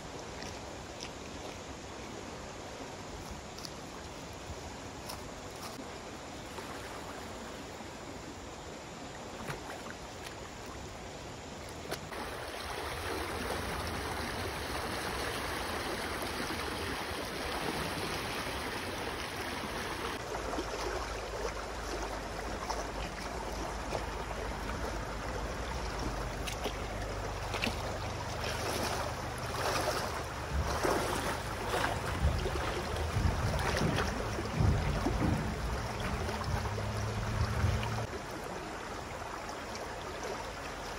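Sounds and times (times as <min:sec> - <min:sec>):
river water flowing: 0:00.0 - 0:40.9
water running over stones: 0:11.7 - 0:40.9
person wading splashing: 0:11.8 - 0:38.2.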